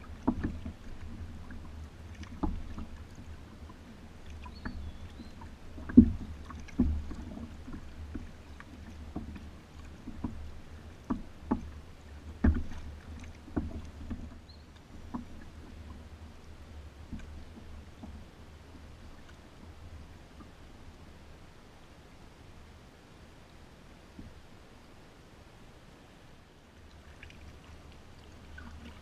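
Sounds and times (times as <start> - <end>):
paddle knocking and splashing: 0.0 - 20.6, 26.9 - 29.0.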